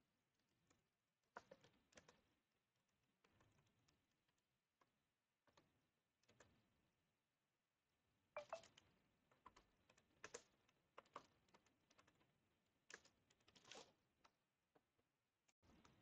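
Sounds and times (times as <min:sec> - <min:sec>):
faint typing on keyboard: 0:00.4 - 0:06.7, 0:08.4 - 0:14.9.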